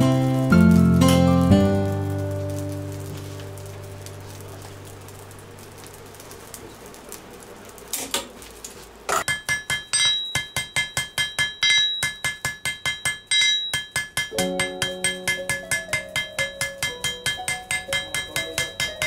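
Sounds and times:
faint workshop noise: 2.3s - 19.0s
hammer blows on ringing anvil: 9.2s - 19.0s.

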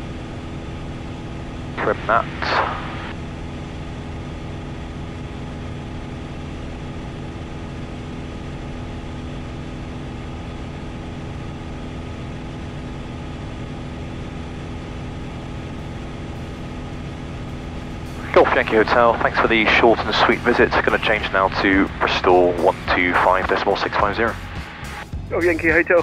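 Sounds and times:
light aircraft engine droning: 0.0s - 26.0s.

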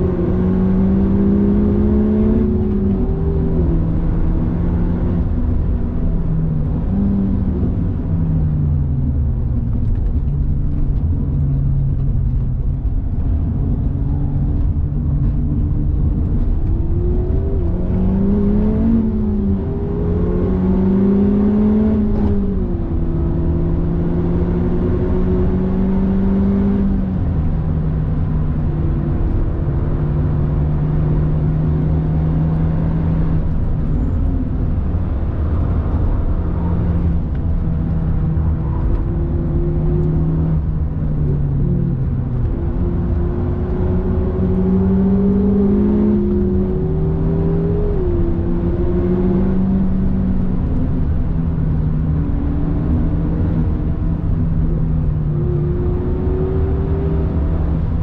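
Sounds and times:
car engine revving and shifting: 0.0s - 58.0s
road and tyre noise: 0.0s - 58.0s.

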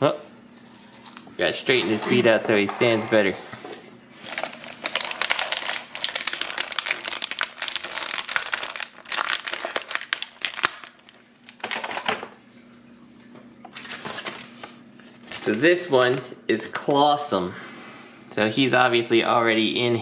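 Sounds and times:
plastic bag crinkling: 4.2s - 12.1s.

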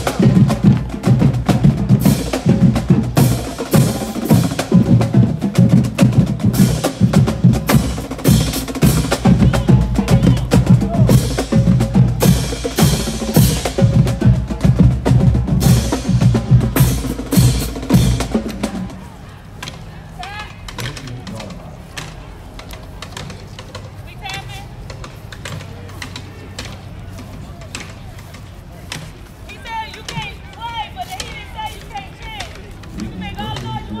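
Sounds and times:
bass drum beats: 0.0s - 19.0s
snare drum strokes: 0.0s - 19.0s, 19.6s - 34.0s.

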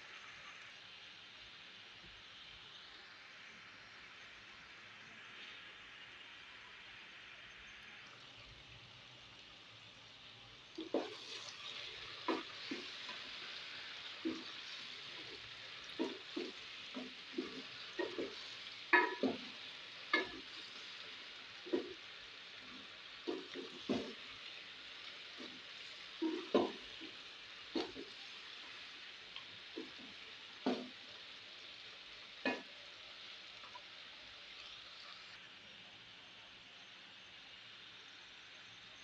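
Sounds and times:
masala sizzling: 0.0s - 39.0s
wooden spatula scraping pot: 10.8s - 13.3s.

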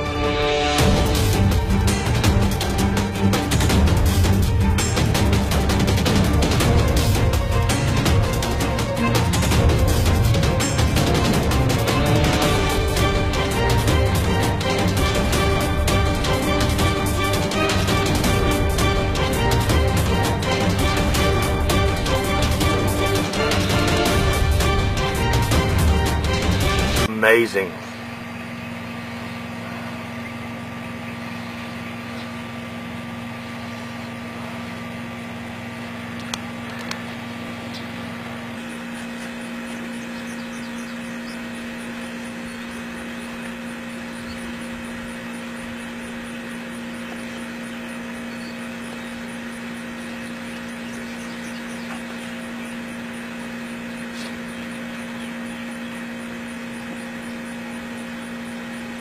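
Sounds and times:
machine hum with tones: 0.0s - 59.0s.

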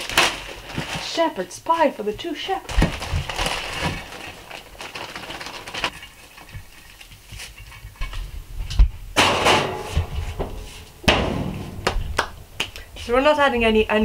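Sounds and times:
plastic packet crinkling: 0.0s - 1.4s, 2.6s - 7.0s
soft knocks: 9.9s - 12.8s.

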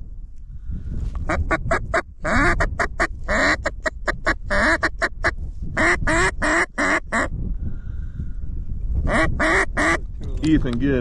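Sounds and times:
duck call quacks: 1.3s - 7.3s, 9.1s - 10.0s.

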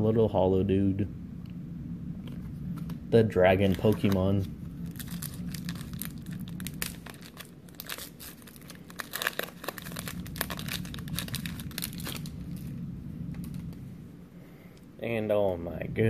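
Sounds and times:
foil wrapper crinkling and tearing: 3.6s - 12.7s.

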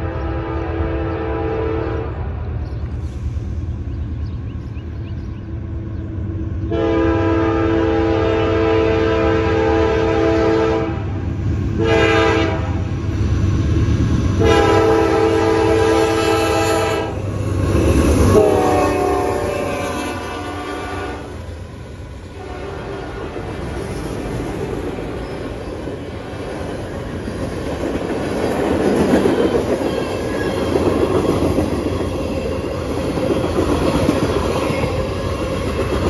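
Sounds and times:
locomotive air horn blasts: 0.0s - 2.4s, 6.7s - 11.1s, 11.8s - 12.9s, 14.4s - 17.2s, 18.3s - 21.3s, 22.4s - 23.4s
diesel train rumbling: 0.0s - 36.0s.

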